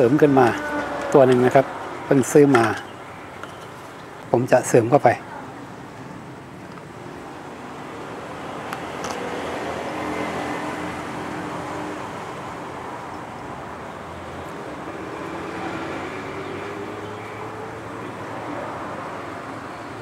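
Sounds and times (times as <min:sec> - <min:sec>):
road traffic noise: 0:00.0 - 0:20.0.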